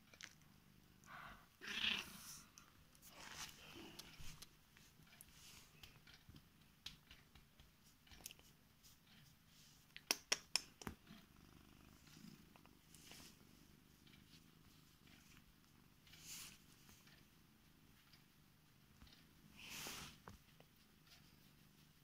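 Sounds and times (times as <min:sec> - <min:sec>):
cat purring: 0:00.1 - 0:09.9, 0:10.9 - 0:22.0.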